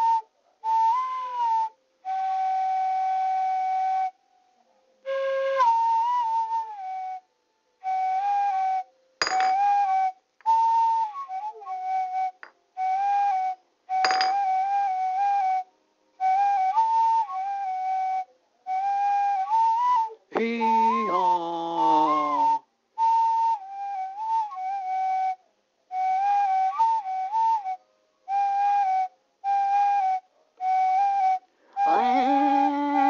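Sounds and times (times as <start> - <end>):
flute melody: 0.0 - 33.0
sharp clinks: 9.2 - 9.6, 14.0 - 14.5.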